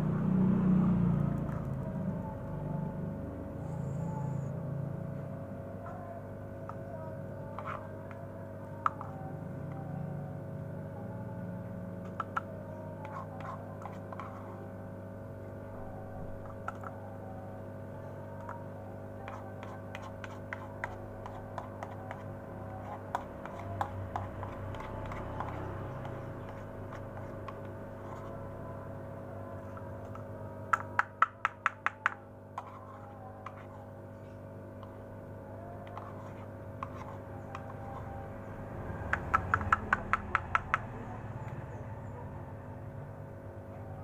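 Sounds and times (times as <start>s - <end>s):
low hum: 0.0s - 31.0s
spoon tapping plastic cup: 12.0s - 14.4s, 29.7s - 33.7s, 39.1s - 40.9s.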